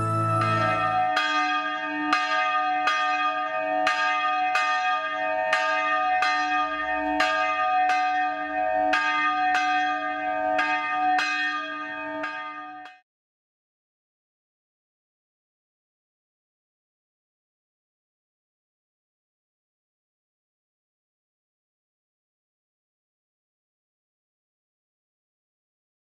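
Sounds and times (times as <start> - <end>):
church bell tolling: 0.0 - 13.0.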